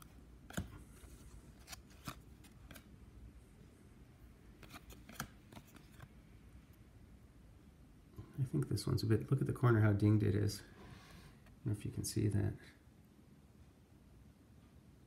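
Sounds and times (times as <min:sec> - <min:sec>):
cards flicking: 0:01.6 - 0:02.9, 0:04.6 - 0:06.0.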